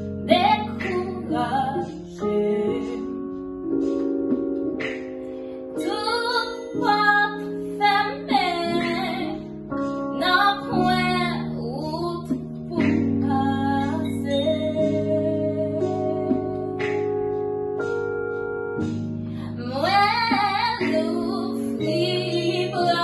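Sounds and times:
electronic keyboard chords: 0:00.0 - 0:23.0
woman singing slow song: 0:00.2 - 0:03.5, 0:05.8 - 0:17.3, 0:19.4 - 0:23.0.

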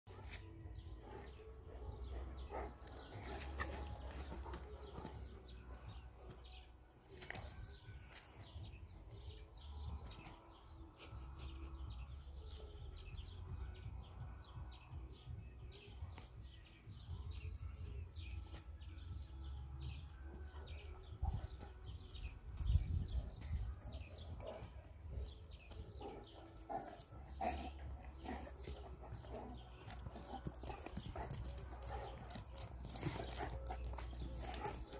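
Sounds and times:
small birds chirping: 0:00.1 - 0:34.9
wind rumble on microphone: 0:21.1 - 0:24.4.

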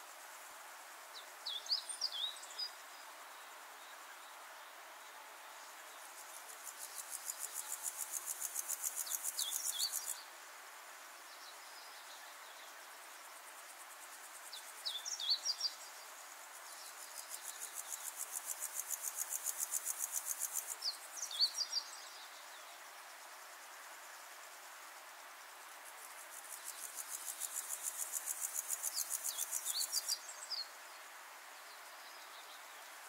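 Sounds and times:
insect pulsed trill: 0:06.1 - 0:10.2, 0:13.2 - 0:22.0, 0:25.8 - 0:30.7
small birds chirping: 0:26.6 - 0:30.7.

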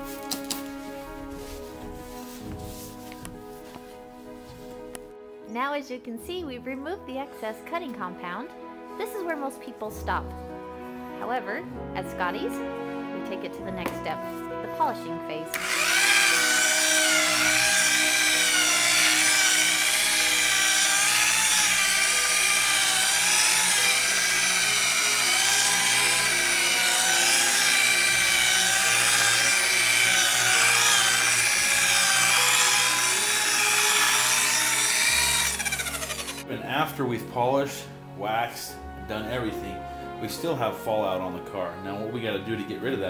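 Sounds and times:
rotary buffer motor whining: 0:15.6 - 0:36.4.

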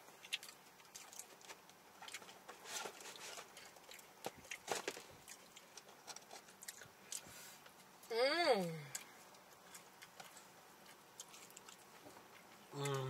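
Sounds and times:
chewing food: 0:00.0 - 0:08.1, 0:08.8 - 0:13.0
food wrapping crackling: 0:00.0 - 0:08.1.

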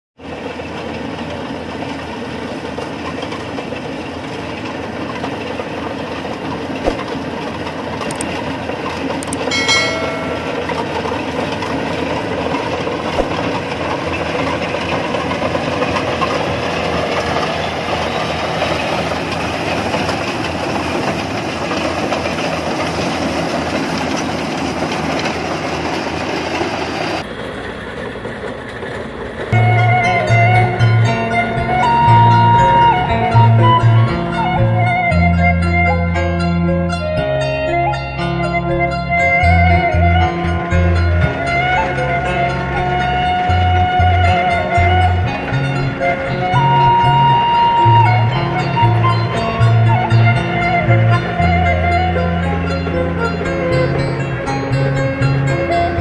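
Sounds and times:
combine harvester clattering: 0:00.2 - 0:56.0
short pitched tone: 0:09.4 - 0:11.1.

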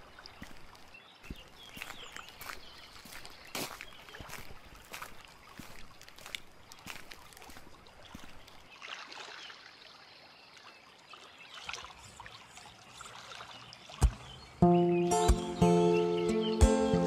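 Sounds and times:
footsteps on bamboo poles and logs: 0:00.0 - 0:08.7
shallow water trickling and lapping: 0:00.0 - 0:14.7
music: 0:14.6 - 0:17.0.

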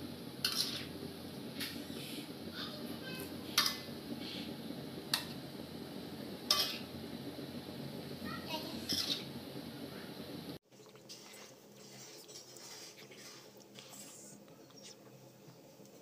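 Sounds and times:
spatula scraping a wok: 0:00.4 - 0:01.0, 0:08.8 - 0:09.3.

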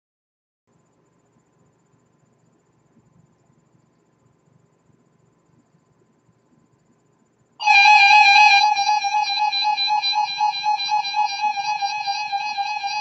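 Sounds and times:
shrill radio alert tone: 0:07.6 - 0:13.0.

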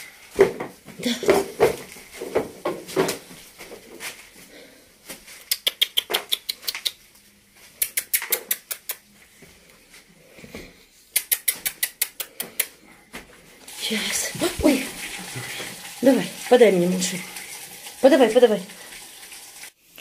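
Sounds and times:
lip-smacking kissing sounds: 0:05.4 - 0:07.1, 0:07.7 - 0:09.0, 0:11.1 - 0:12.8.

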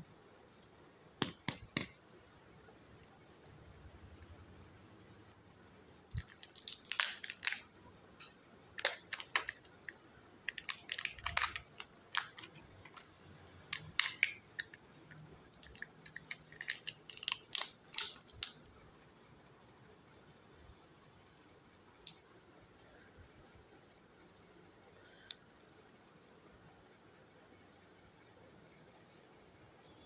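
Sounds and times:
plastic shell and foil crinkling: 0:06.0 - 0:07.7, 0:08.8 - 0:18.6.

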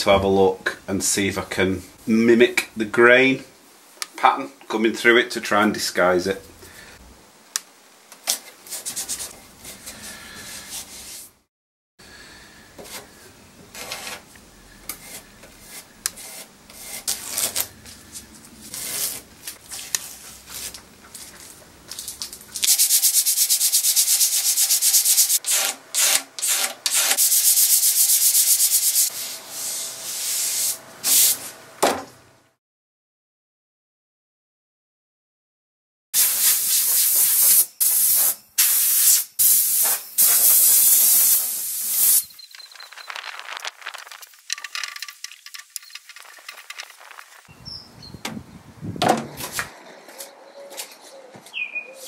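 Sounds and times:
sanding wood: 0:15.0 - 0:17.3, 0:22.6 - 0:31.4
masking tape tearing and rubbing: 0:16.1 - 0:17.8, 0:18.6 - 0:21.3, 0:43.0 - 0:44.8.

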